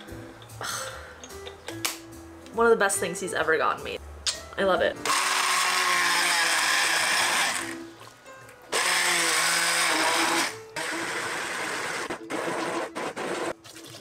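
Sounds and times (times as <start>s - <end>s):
immersion blender running: 5.0s - 7.8s, 8.7s - 13.5s.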